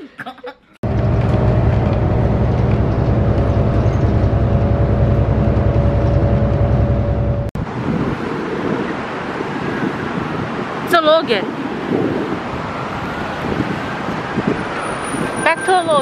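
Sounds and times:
road and engine rumble: 0:00.8 - 0:16.0.

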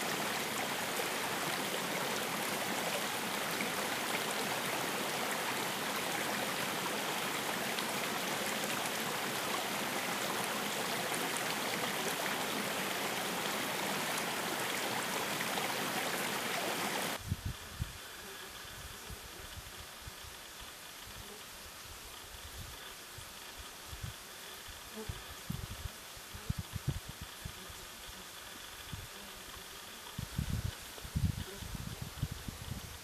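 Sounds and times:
spring water rushing: 0:00.0 - 0:17.2.

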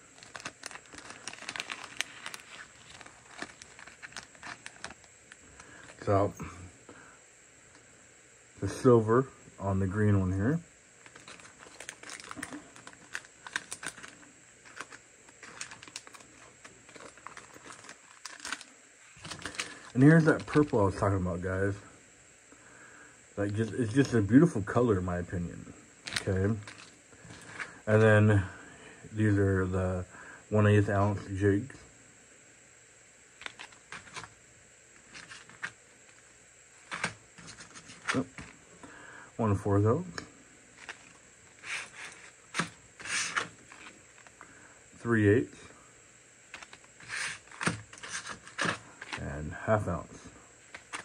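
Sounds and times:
plastic packs crinkling: 0:00.0 - 0:06.1, 0:11.0 - 0:21.0, 0:26.0 - 0:28.1, 0:33.4 - 0:34.4, 0:35.0 - 0:38.6, 0:40.7 - 0:44.5, 0:46.5 - 0:49.2, 0:50.6 - 0:51.0
plastic packs clattering on table: 0:00.2 - 0:06.0, 0:11.0 - 0:20.8, 0:36.8 - 0:38.6, 0:46.5 - 0:49.2, 0:50.7 - 0:51.0
packages clicking on wooden table: 0:46.5 - 0:49.2.

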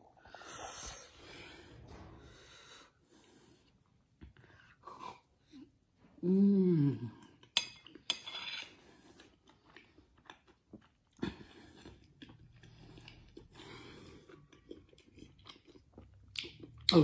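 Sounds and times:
man humming with pleasure: 0:06.2 - 0:07.2
chewing with mouth clicks: 0:09.0 - 0:17.0.

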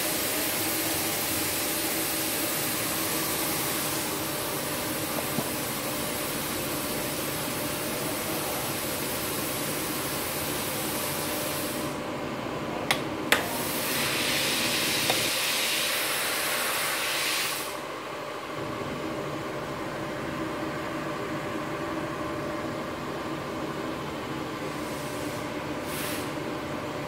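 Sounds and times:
welding machine hiss and hum: 0:00.0 - 0:12.2, 0:12.9 - 0:27.0
bright welding hiss: 0:13.4 - 0:17.9, 0:24.8 - 0:26.4.

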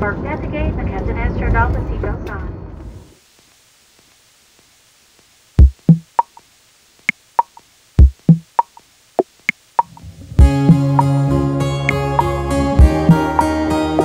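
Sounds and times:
low drum thumps and clicks: 0:05.6 - 0:06.2, 0:08.0 - 0:08.6
music of sustained notes: 0:10.0 - 0:14.0.

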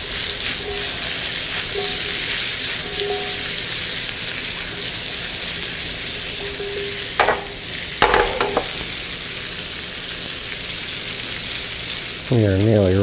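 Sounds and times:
vegetables sizzling in butter: 0:00.0 - 0:13.0
metallic knocks of pan on burner: 0:07.2 - 0:08.8.

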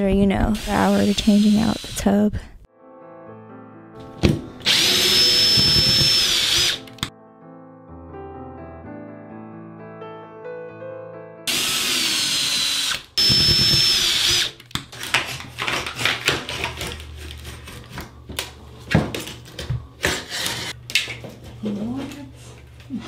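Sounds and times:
cordless drill running: 0:00.6 - 0:02.0, 0:04.6 - 0:07.1, 0:11.5 - 0:14.8
hand tools clicking and scraping: 0:13.6 - 0:22.2.

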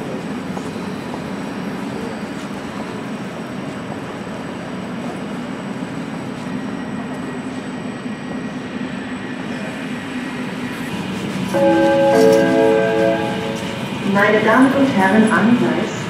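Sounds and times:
train wheels rumbling on rails: 0:00.0 - 0:07.7.

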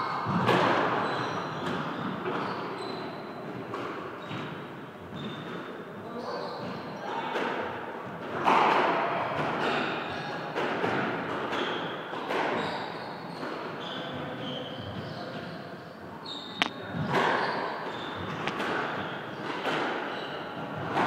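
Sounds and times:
shoes squeaking on wooden floor: 0:16.2 - 0:19.5
squash ball cracking off racket: 0:18.3 - 0:19.0.

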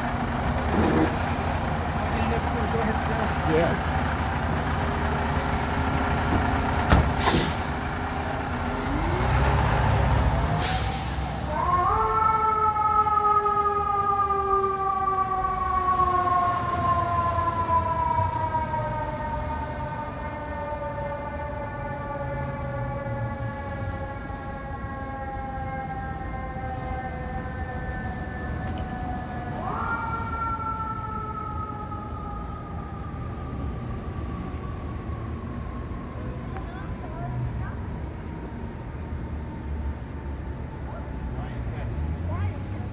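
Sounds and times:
diesel engine rumble: 0:00.0 - 0:42.9
short sharp hisses: 0:07.2 - 0:07.7, 0:10.6 - 0:11.3.

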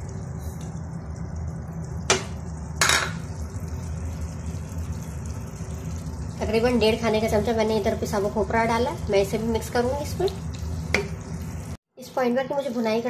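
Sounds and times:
steady low hum: 0:00.0 - 0:11.8
utensil knocking frying pan: 0:02.1 - 0:03.3, 0:10.9 - 0:11.2.

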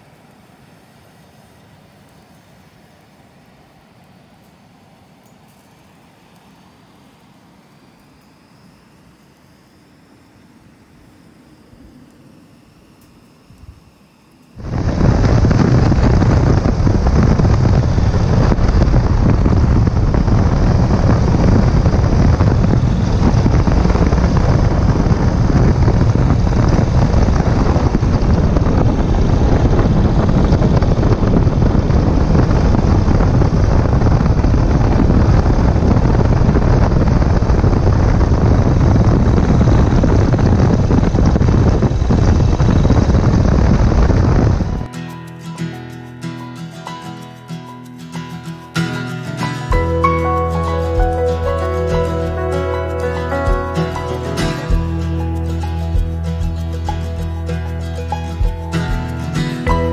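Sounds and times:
wind rushing over microphone: 0:14.6 - 0:44.9, 0:48.4 - 0:59.9
motorcycle engine cruising: 0:49.6 - 0:59.9.

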